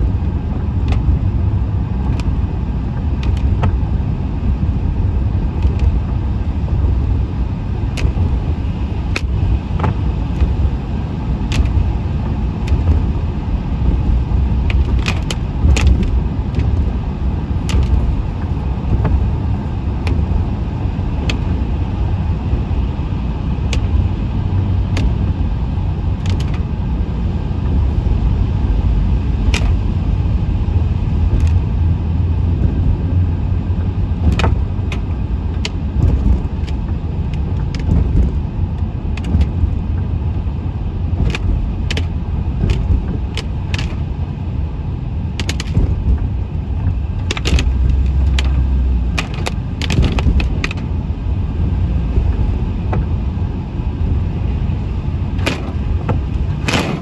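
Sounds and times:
vehicle road and engine rumble: 0:00.0 - 0:57.0.

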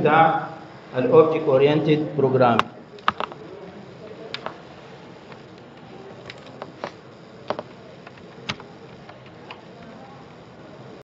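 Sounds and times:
low room hiss: 0:00.0 - 0:11.0
sharp clicks and taps: 0:02.6 - 0:03.4.

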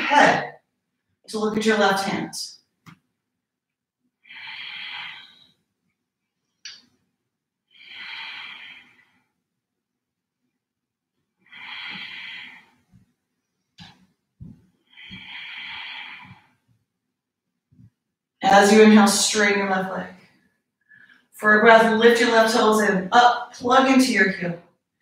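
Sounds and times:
woman breathing slowly: 0:04.2 - 0:05.6, 0:07.7 - 0:09.4, 0:11.4 - 0:13.2, 0:13.9 - 0:16.7, 0:20.2 - 0:21.3.

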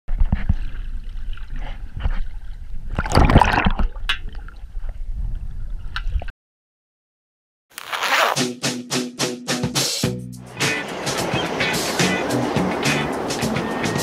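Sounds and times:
underwater sloshing and bubbling: 0:00.2 - 0:05.8
water rushing: 0:10.4 - 0:14.0.

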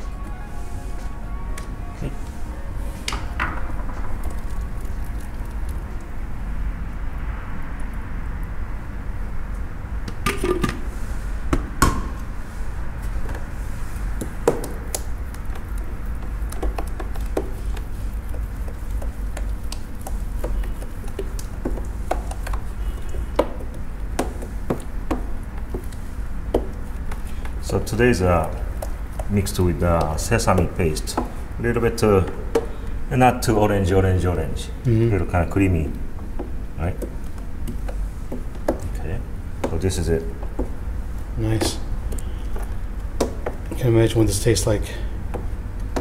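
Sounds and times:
spoon stirring thick dressing: 0:04.1 - 0:06.2, 0:12.4 - 0:33.1, 0:35.2 - 0:46.0
spoon tapping plastic container: 0:14.5 - 0:25.9.

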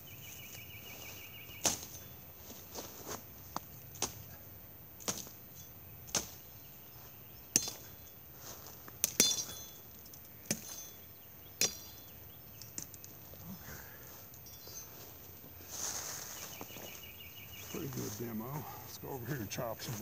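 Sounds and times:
machete chopping brush: 0:01.6 - 0:02.0, 0:05.0 - 0:05.4, 0:06.1 - 0:06.4, 0:07.5 - 0:07.9, 0:10.4 - 0:11.0.

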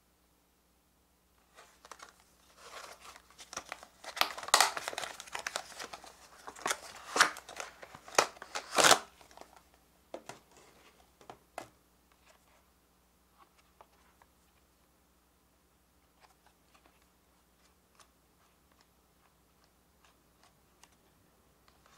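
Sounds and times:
plastic packaging crinkling: 0:01.5 - 0:09.6.

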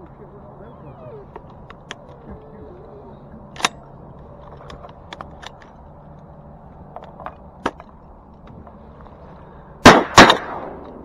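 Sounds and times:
shotgun shot: 0:09.8 - 0:10.8.

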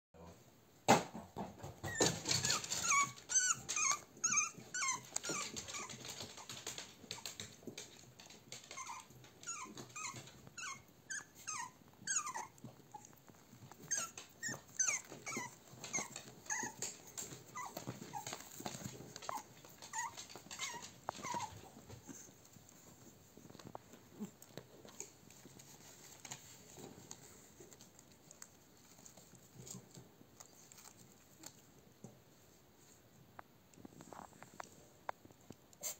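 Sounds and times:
puppies crying: 0:01.8 - 0:07.4, 0:08.5 - 0:22.3.

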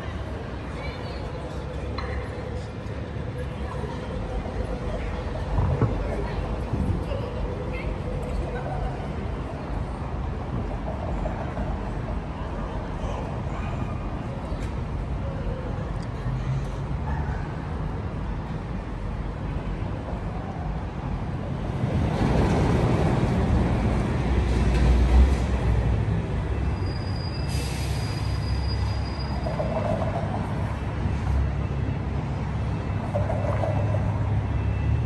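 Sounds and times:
street noise: 0:00.0 - 0:35.0
tram rumble: 0:00.0 - 0:35.0
high wheel squeal: 0:26.6 - 0:30.5.

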